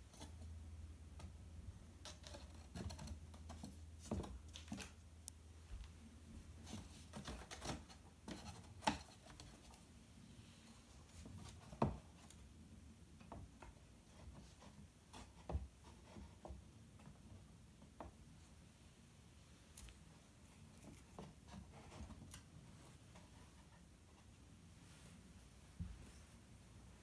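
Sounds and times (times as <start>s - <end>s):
light taps clicks and rustles: 0.0s - 6.0s, 6.6s - 9.9s.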